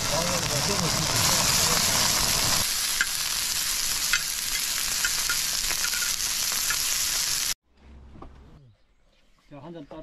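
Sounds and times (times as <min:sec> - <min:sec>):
meat sizzling on griddle pan: 0:00.0 - 0:07.6.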